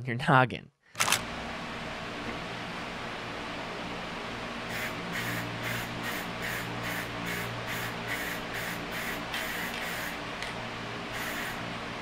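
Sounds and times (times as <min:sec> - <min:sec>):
spray can hissing puffs: 0:04.7 - 0:10.2, 0:11.2 - 0:11.6.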